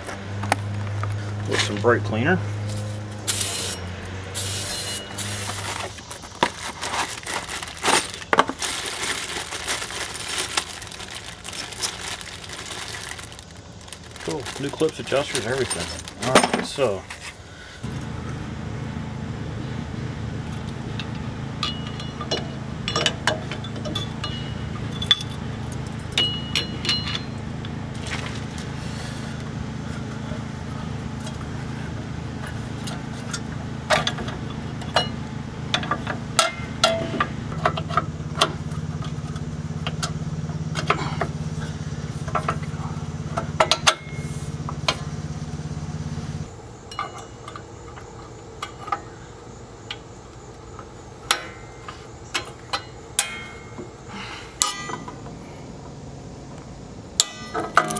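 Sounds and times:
steady low hum: 0.0s - 57.9s
metal brake parts clinking: 14.3s - 17.3s, 21.0s - 27.4s, 32.4s - 45.1s, 46.8s - 49.2s, 50.8s - 54.0s, 54.6s - 55.4s, 57.2s - 57.9s.

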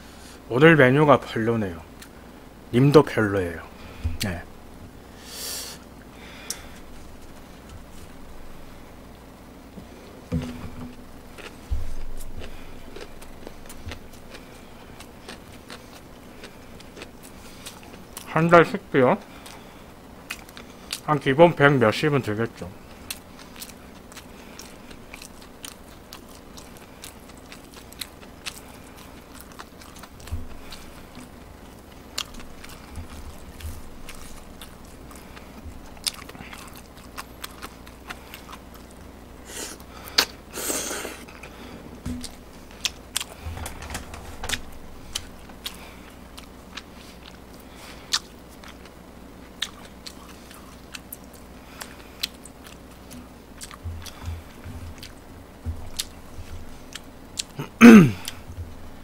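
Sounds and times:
chewing with wet mouth clicks: 12.4s - 18.3s, 22.9s - 39.2s, 45.1s - 57.6s.

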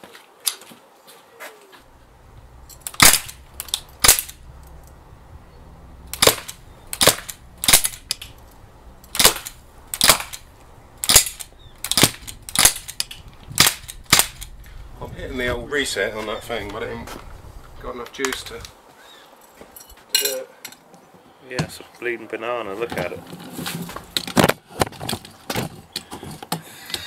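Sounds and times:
air rifle shots: 2.8s - 4.5s, 6.1s - 8.4s, 9.1s - 14.6s.

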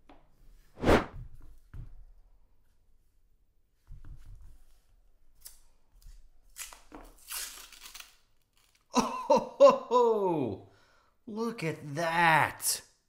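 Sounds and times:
paper wrapper tearing: 6.5s - 8.9s.

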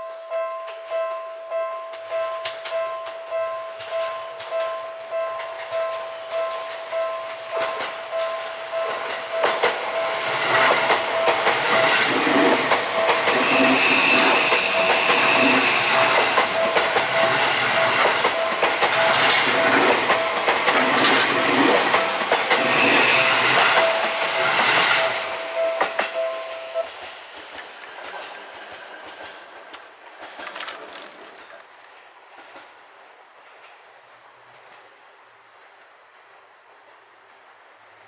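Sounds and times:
level crossing warning bell: 0.0s - 27.0s
train wheels clattering: 1.9s - 34.9s.

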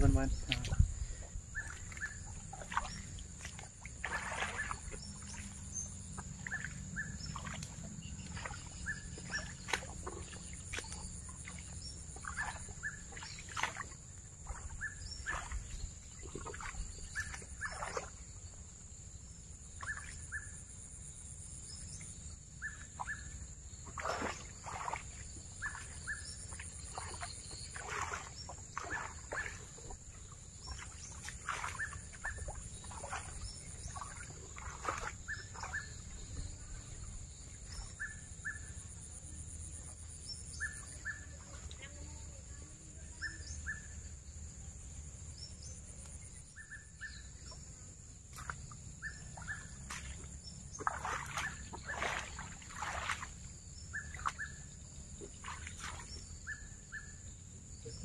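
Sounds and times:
birds chirping: 0.0s - 18.3s, 19.7s - 41.6s.

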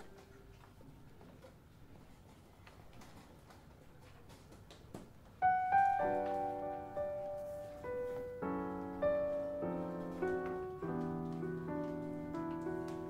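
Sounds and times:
piano music: 0.0s - 0.5s, 5.4s - 13.0s.

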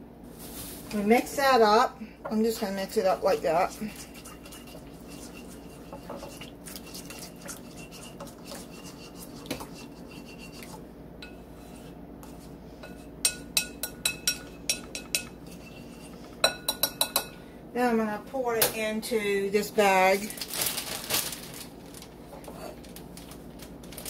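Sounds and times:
utensil stirring in a bowl: 2.5s - 17.3s
utensil clinking against bowl: 12.8s - 17.4s.

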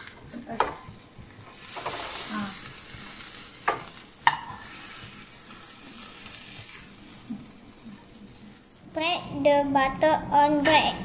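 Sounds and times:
metal clinking against plate: 0.0s - 0.8s
omelette sizzling in a frying pan: 0.0s - 9.7s.

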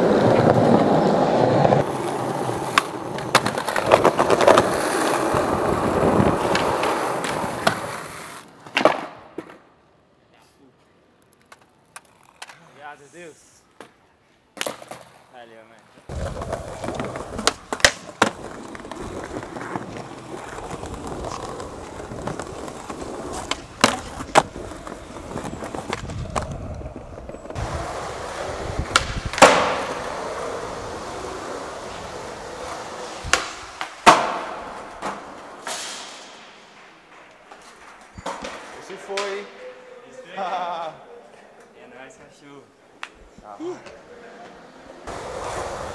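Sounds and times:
skateboard clacks and landings: 0.0s - 9.7s, 16.1s - 39.3s
skateboard wheels rolling on concrete: 0.0s - 45.9s.

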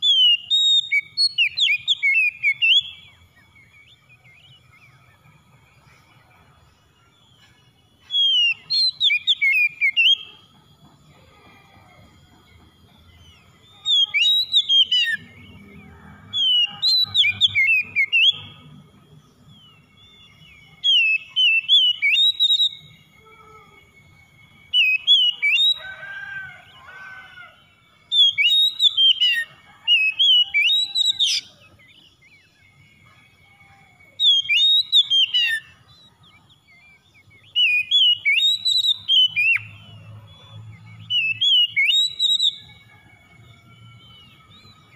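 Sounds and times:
bird singing whistled phrases: 0.0s - 5.3s, 7.9s - 10.5s, 13.3s - 18.8s, 19.5s - 25.9s, 28.1s - 39.9s, 40.8s - 43.0s.

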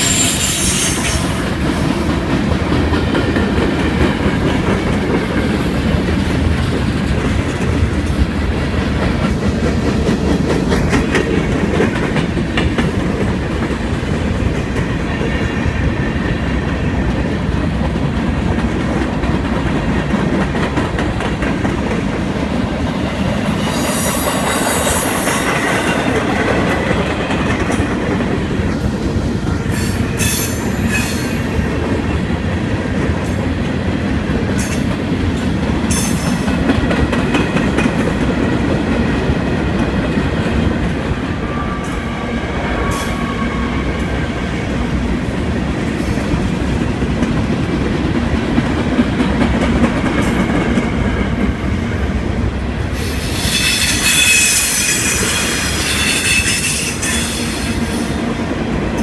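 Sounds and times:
high-pitched wheel squeals: 0.0s - 1.3s, 53.1s - 57.8s
train wheels rumbling on rail: 0.0s - 59.0s.

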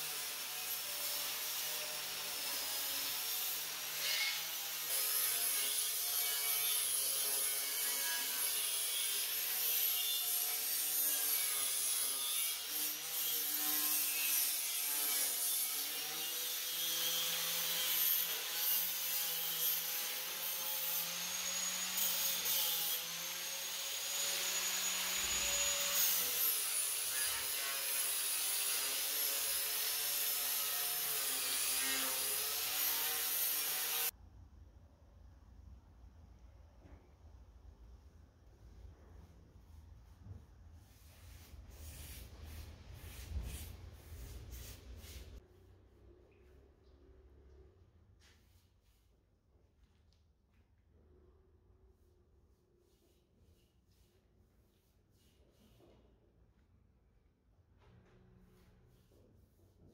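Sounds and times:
angle grinder grinding steel: 2.8s - 34.1s.

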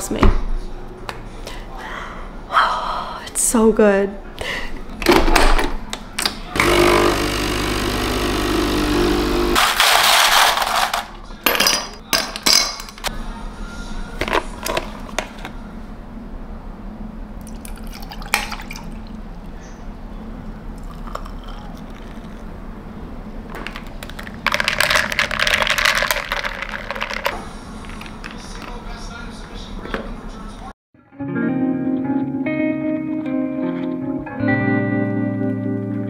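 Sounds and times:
espresso machine hissing sputter: 6.6s - 9.6s
espresso machine pump: 6.6s - 9.6s
glass and ice clinking: 17.5s - 18.9s, 20.8s - 22.4s, 24.4s - 27.4s
milk pouring over ice: 17.5s - 18.9s, 20.8s - 22.4s, 24.1s - 28.4s
ice rattling while stirred: 23.7s - 28.7s.

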